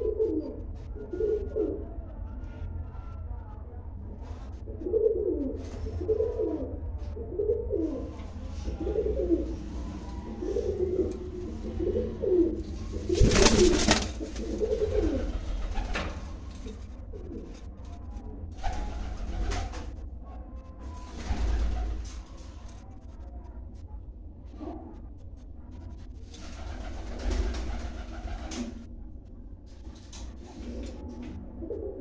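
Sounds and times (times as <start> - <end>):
pigeon cooing: 0.0 - 1.9, 4.7 - 17.7
wing flapping: 12.8 - 16.8.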